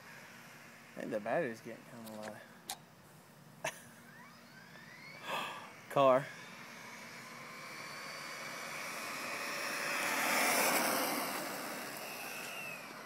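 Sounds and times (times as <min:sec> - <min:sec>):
toy truck motor whine: 0:04.0 - 0:13.0
tyres hissing on pavement: 0:06.2 - 0:13.0.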